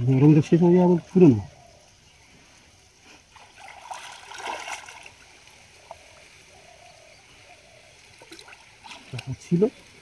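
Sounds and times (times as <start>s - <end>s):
muddy water sloshing and splashing: 3.2s - 6.6s, 7.6s - 10.0s.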